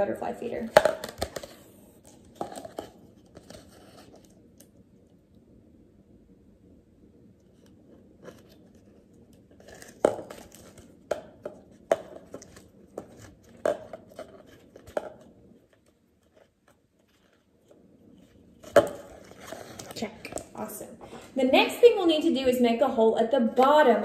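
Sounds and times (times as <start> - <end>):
plastic cup clicks and crackles: 0.7 - 3.6.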